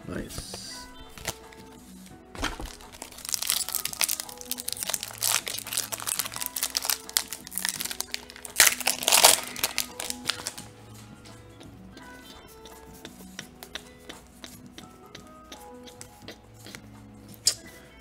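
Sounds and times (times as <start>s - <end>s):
foil wrapper crinkling: 1.0s - 1.7s, 2.4s - 10.7s
foil pack tearing open: 1.2s - 1.4s, 2.4s - 10.7s.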